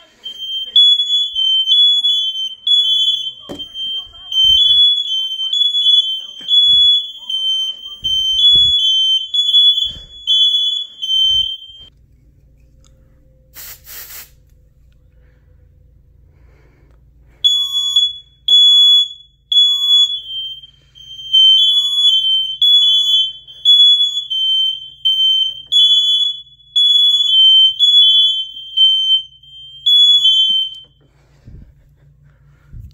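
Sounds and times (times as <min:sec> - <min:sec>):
smoke alarms beeping: 0:00.0 - 0:11.9, 0:17.3 - 0:31.4
short hiss: 0:13.6 - 0:14.4.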